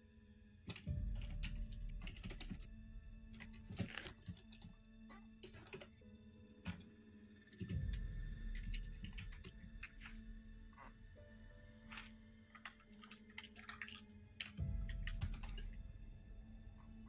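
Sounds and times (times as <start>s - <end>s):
soft background music: 0.0s - 17.0s
keyboard typing and clicking: 0.7s - 2.7s, 5.4s - 6.0s, 7.6s - 10.2s, 12.5s - 15.8s.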